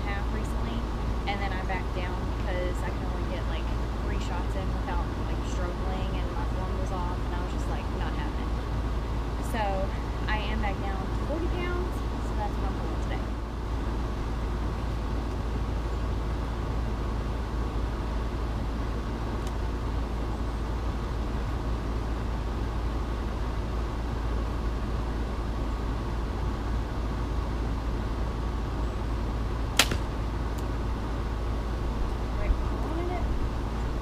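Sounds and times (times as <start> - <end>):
low outdoor rumble: 0.0 - 34.0
bow shot snap: 29.8 - 30.7.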